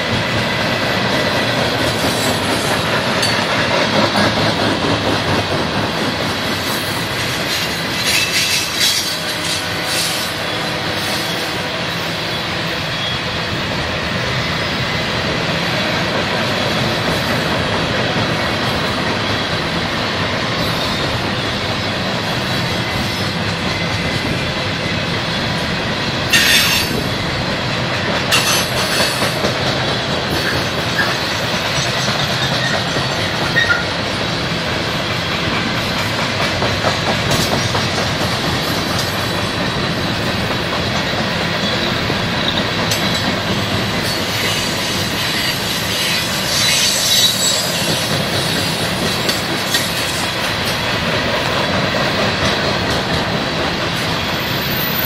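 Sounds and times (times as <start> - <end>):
train wheels rumbling on rail: 0.0 - 55.0
wheel squeal: 32.4 - 33.9, 44.1 - 48.9.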